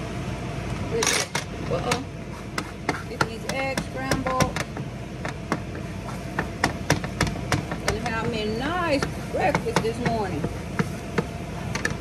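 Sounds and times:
vent fan humming: 0.0 - 12.0
wooden spatula scraping griddle: 2.2 - 4.4, 5.4 - 12.0.

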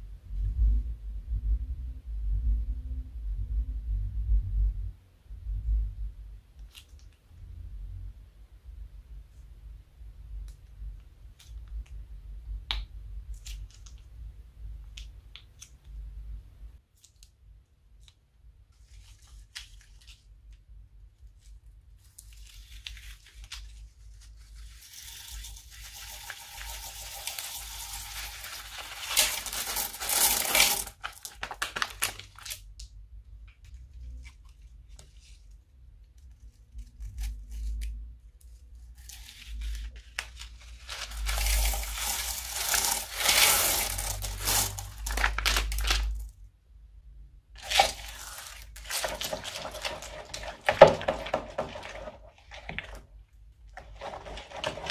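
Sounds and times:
plastic bags crinkling: 22.1 - 32.6, 39.2 - 46.3, 47.6 - 53.1, 53.8 - 54.9
plastic beads pouring into bowl: 24.5 - 32.2, 40.8 - 46.2, 47.6 - 53.0, 53.8 - 54.9
scissors snipping plastic bag: 28.0 - 32.6, 40.8 - 46.1, 47.6 - 52.0.

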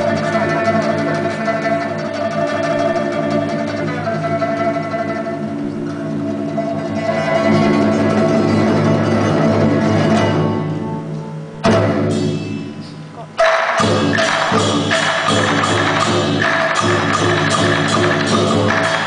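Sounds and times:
orchestra playing: 0.0 - 12.8
drums striking: 11.6 - 19.0.

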